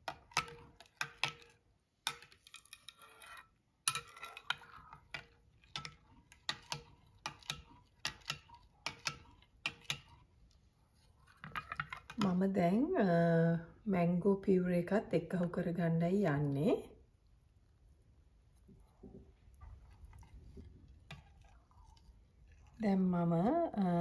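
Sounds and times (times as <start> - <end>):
metal spoon clinking glass bowl: 0.1 - 10.1.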